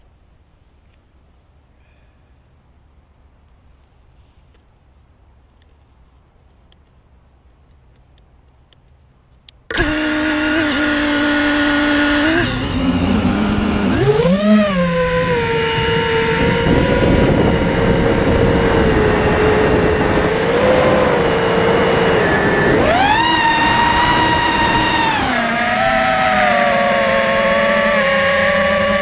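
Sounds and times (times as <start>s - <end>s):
drone motors and propellers whining: 9.7s - 29.0s.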